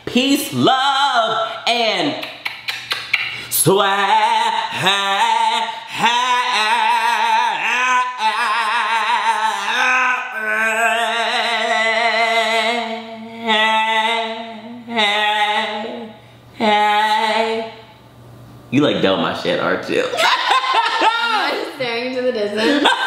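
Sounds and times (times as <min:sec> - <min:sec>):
person singing with vibrato: 0:00.0 - 0:18.0.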